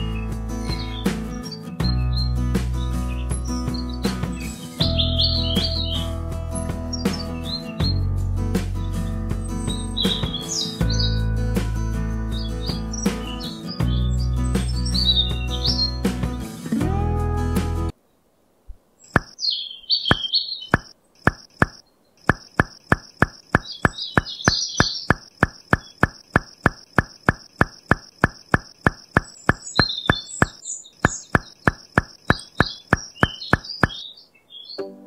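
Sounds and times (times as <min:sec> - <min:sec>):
faint bird chirps: 0:00.0 - 0:06.1, 0:06.9 - 0:08.0, 0:08.8 - 0:11.3, 0:12.3 - 0:16.0, 0:19.0 - 0:34.8
music: 0:00.0 - 0:17.9, 0:34.8 - 0:35.0
short sharp taps: 0:19.1 - 0:19.4, 0:20.1 - 0:34.0.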